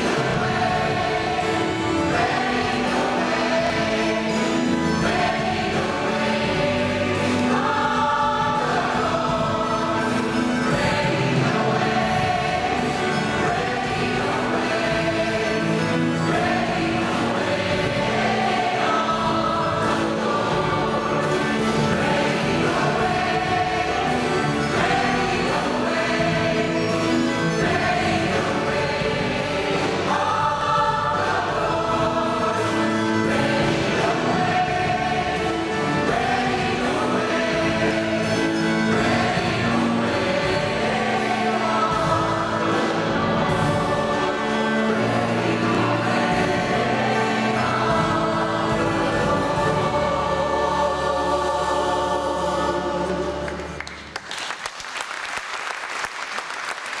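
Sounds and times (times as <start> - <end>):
choir singing a hymn: 0.0 - 54.2
instrumental accompaniment: 0.0 - 54.2
audience applause: 53.4 - 57.0.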